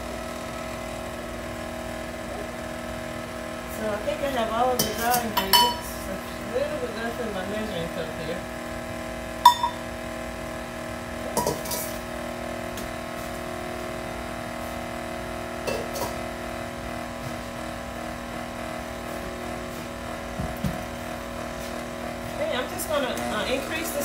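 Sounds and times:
stand mixer motor humming: 0.0s - 24.0s
utensils clinking: 4.8s - 5.9s.

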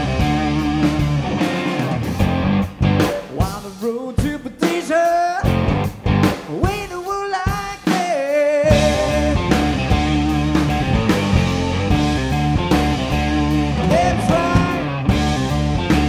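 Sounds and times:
bending electric guitar lead: 0.0s - 3.5s, 5.4s - 6.5s, 8.7s - 16.0s
blues-rock band hits: 0.0s - 16.0s.

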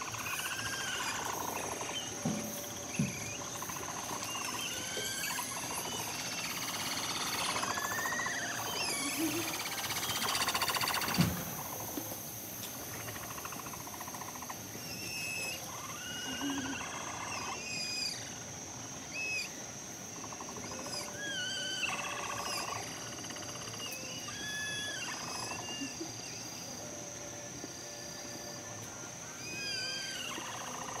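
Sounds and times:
capybara whining call: 0.0s - 11.4s, 14.8s - 18.4s, 20.6s - 26.4s, 29.3s - 31.0s
capybaras chirping: 0.0s - 12.0s, 12.8s - 18.4s, 19.1s - 19.5s, 20.2s - 26.6s, 29.4s - 31.0s.

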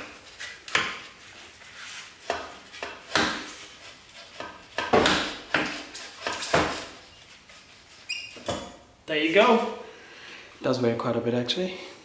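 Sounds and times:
sharp knocks: 2.3s - 3.5s, 4.4s - 6.8s.

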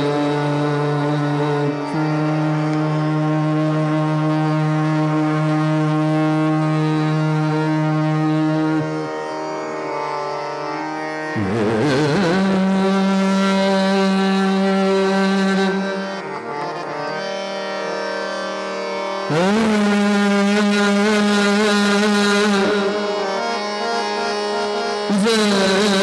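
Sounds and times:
man singing classical vocal: 0.0s - 9.0s, 19.2s - 26.0s
plucked tanpura drone: 0.0s - 26.0s.

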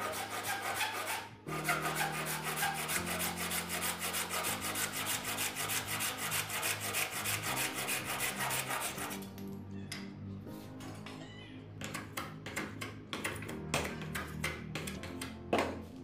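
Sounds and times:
handsaw cutting wood: 0.0s - 9.2s.

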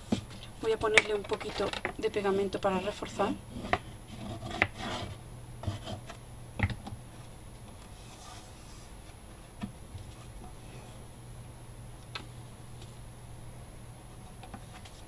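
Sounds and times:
fingertips rubbing cardboard: 3.5s - 6.1s.

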